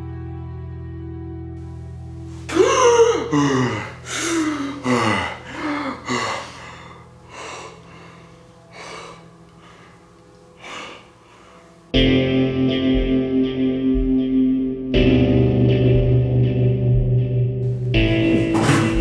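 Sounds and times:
man gasping and panting: 2.4 - 10.0.

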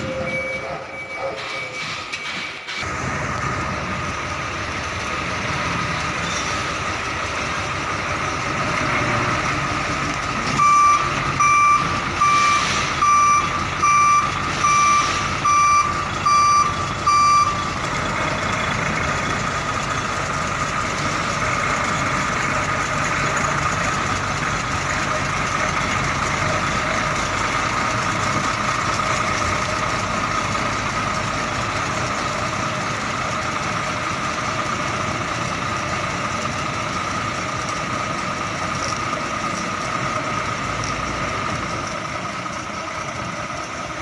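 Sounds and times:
reversing alarm beeps: 0.0 - 2.6, 10.6 - 17.6
truck engine droning: 0.0 - 44.0.

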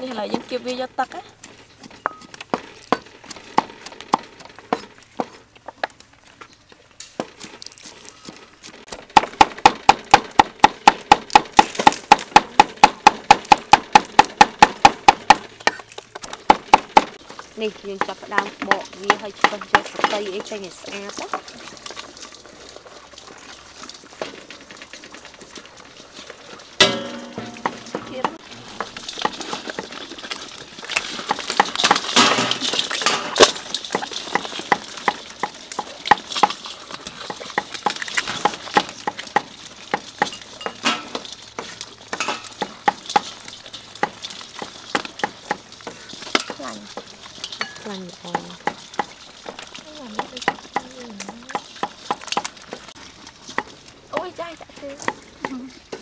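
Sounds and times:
crabs clattering in steel bowl: 7.0 - 56.0
person speaking: 27.5 - 28.4.

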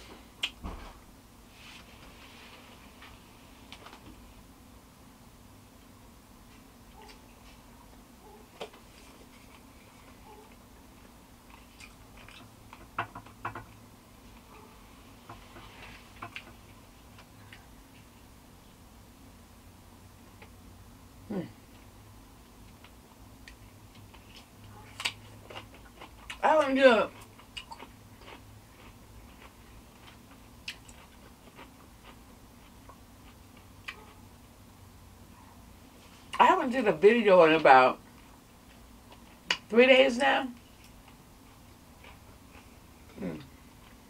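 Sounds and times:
faint steady hum: 0.0 - 44.0
mouth chewing food: 6.9 - 14.7, 22.6 - 34.4, 40.7 - 44.0.

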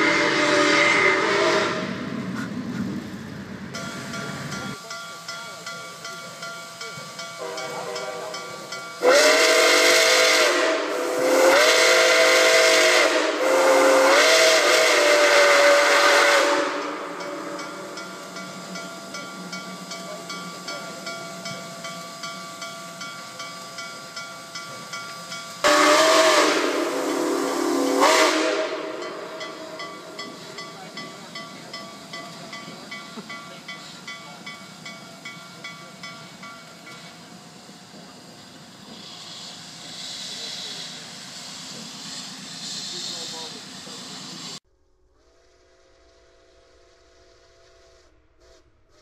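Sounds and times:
steam whistle blasts: 0.0 - 2.0, 9.0 - 18.0, 25.6 - 30.5.

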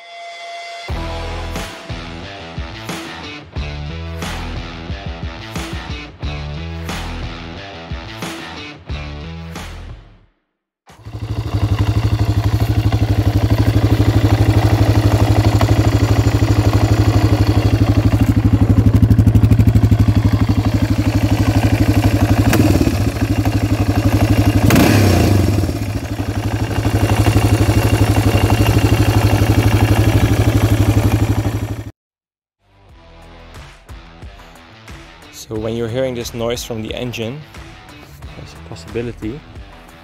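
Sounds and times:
motorcycle engine idling: 10.9 - 31.9.

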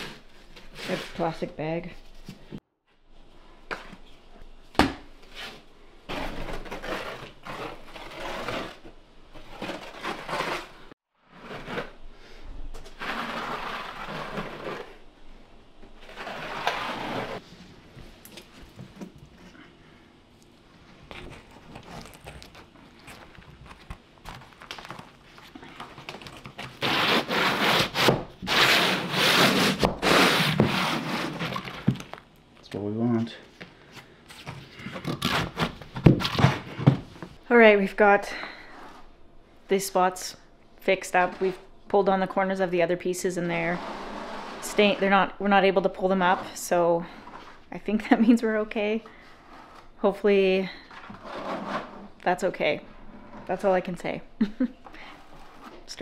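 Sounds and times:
trowel scraping mortar: 6.1 - 12.0, 12.8 - 15.0
float scraping over plastic membrane: 12.8 - 15.0.

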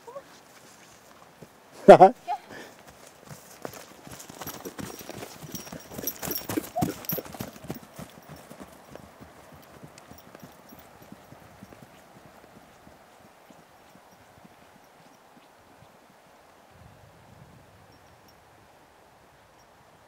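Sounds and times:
horse hoofbeats on soft ground: 0.0 - 16.8.

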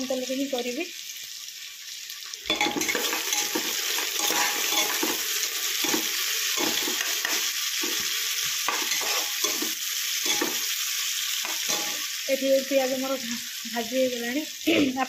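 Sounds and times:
onions sizzling in oil: 0.0 - 15.0
spatula scraping pot: 2.5 - 8.1, 8.7 - 10.7.

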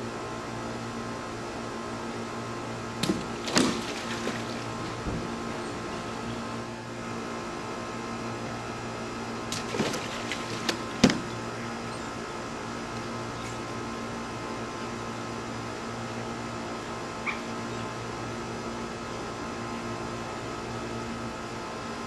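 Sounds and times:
steady mechanical hum: 0.0 - 22.0
sharp knocks: 10.7 - 11.4.

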